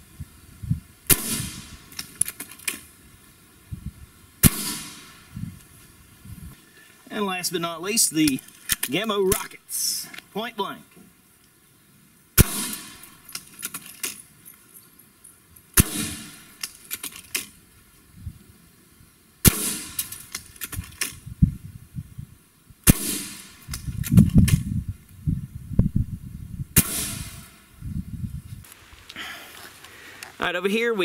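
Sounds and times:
air rifle shots: 1.1s - 2.8s, 4.4s - 5.4s, 12.4s - 14.1s, 15.8s - 17.5s, 19.4s - 21.2s, 22.8s - 24.6s, 26.8s - 27.6s
pellet smacking sheet metal: 1.1s - 2.8s, 4.4s - 5.2s, 12.4s - 14.2s, 19.5s - 21.1s, 22.9s - 24.2s, 26.8s - 27.5s.

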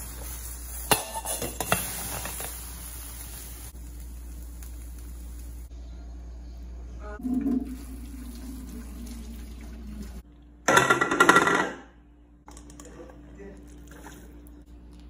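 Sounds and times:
water pouring into steel sink: 7.2s - 10.2s
dish clattering on wooden table: 10.7s - 11.8s.

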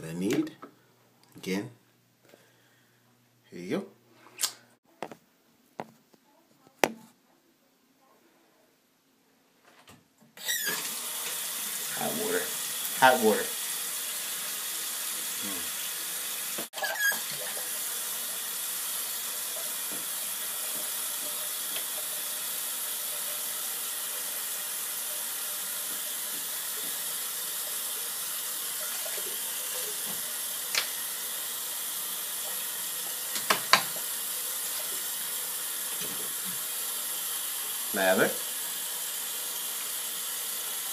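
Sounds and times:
tap running into sink: 32.5s - 34.2s, 35.9s - 36.4s.

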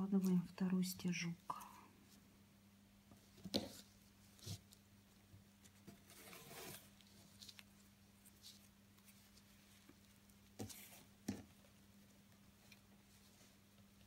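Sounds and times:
low steady hum: 0.0s - 14.0s
ribbon rustling through fabric: 5.6s - 11.2s.

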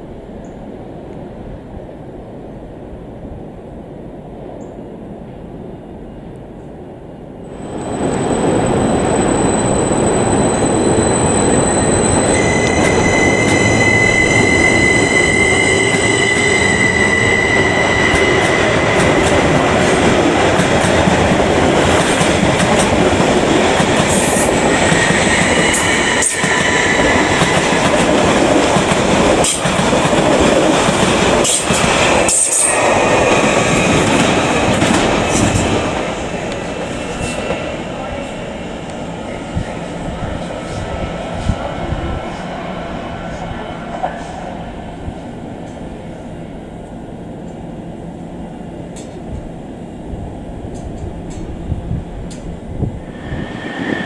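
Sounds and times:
train wheels rumbling on rail: 0.0s - 54.0s
high-pitched whine: 7.5s - 19.3s.

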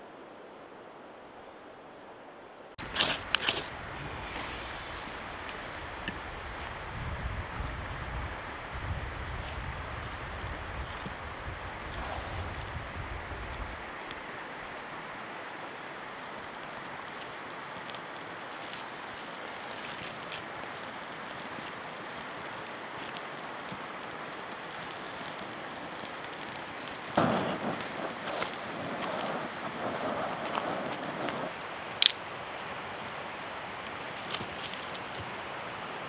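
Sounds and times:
river water flowing: 13.7s - 36.0s.

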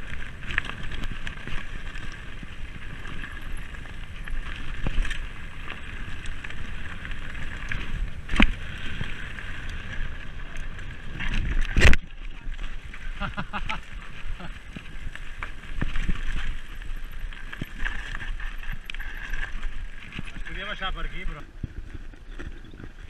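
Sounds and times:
bike hitting bumps: 0.0s - 12.1s
bike tyres on dirt trail: 0.0s - 23.0s.

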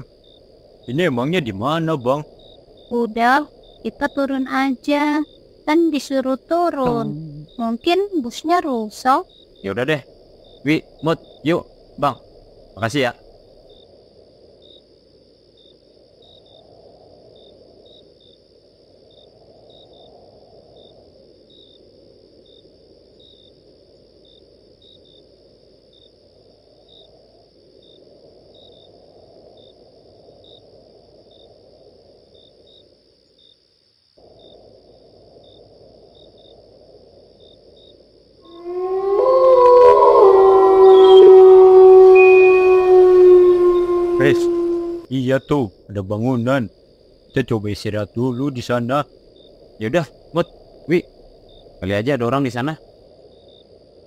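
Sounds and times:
faint low rushing wind: 0.0s - 33.3s, 34.2s - 54.0s
crickets trilling and chirping: 0.0s - 54.0s
loud pitched gliding tones: 39.8s - 45.1s.

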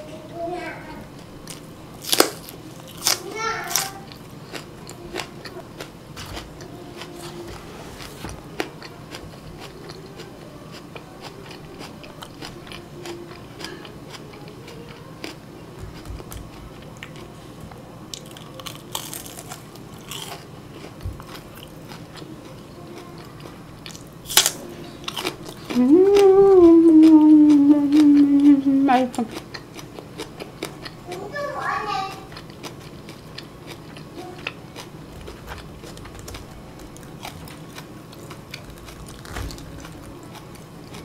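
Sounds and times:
chewing crispy food: 1.4s - 41.0s
loud crunch of raw onion: 2.0s - 3.9s, 18.1s - 21.0s, 23.9s - 25.8s
person speaking: 25.7s - 29.4s.

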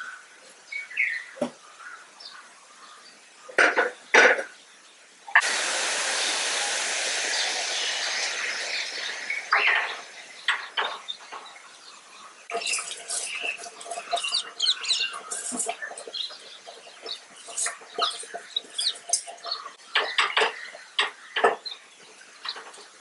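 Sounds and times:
water pouring: 5.4s - 11.1s, 12.5s - 19.5s.

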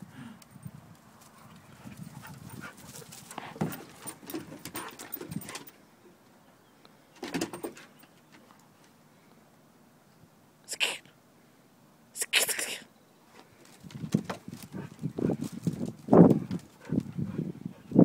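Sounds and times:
dogs scuffling: 1.1s - 5.8s, 13.6s - 17.1s
dogs breathing: 1.3s - 5.8s, 14.6s - 18.0s.

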